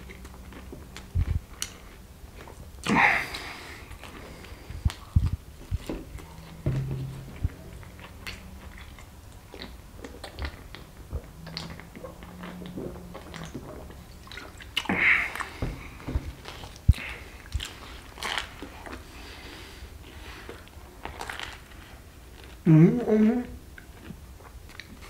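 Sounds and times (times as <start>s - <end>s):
wet chewing and lip smacks: 0.0s - 6.6s, 8.2s - 15.6s, 23.8s - 25.0s
low throaty hum: 2.9s - 9.5s.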